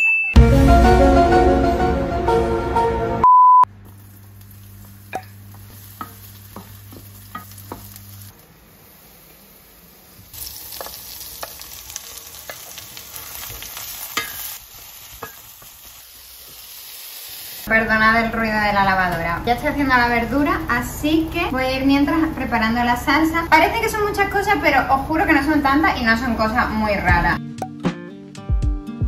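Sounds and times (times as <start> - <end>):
short electronic beep: 3.2 - 3.7
vegetables stir-frying in a pan: 3.7 - 25.7
sizzle: 3.7 - 27.0.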